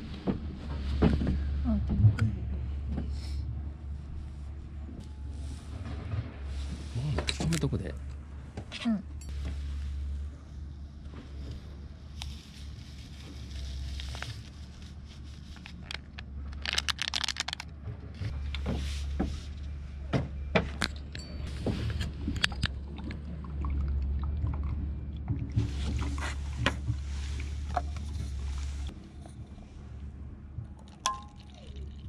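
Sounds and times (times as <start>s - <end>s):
liquid sloshing: 21.6s - 29.0s.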